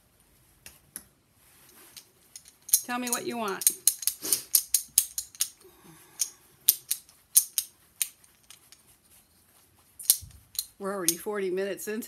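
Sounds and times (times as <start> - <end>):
metal jewelry clinking: 1.6 - 9.0, 10.0 - 11.2.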